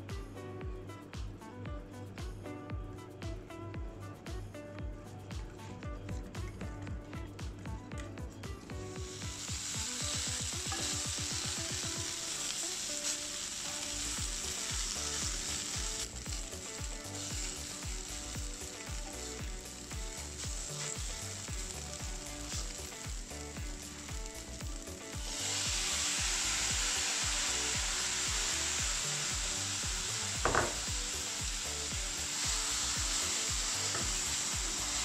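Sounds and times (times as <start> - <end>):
tofu sizzling in oil: 8.9 - 35.0.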